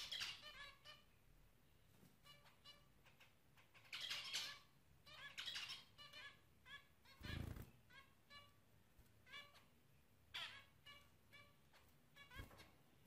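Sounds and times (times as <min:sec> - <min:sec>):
finches beeping calls: 0:00.0 - 0:01.1, 0:02.3 - 0:08.6.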